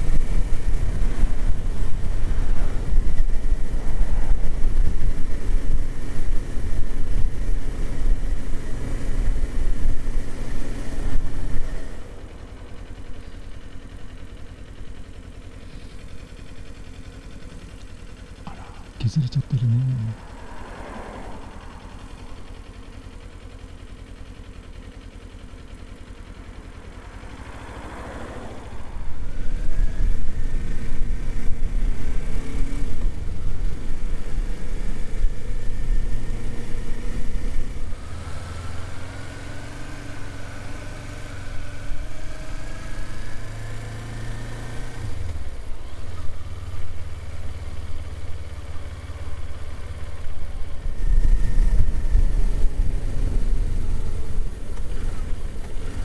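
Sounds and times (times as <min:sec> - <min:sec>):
motorcycle engine revving: 0:26.4 - 0:56.0.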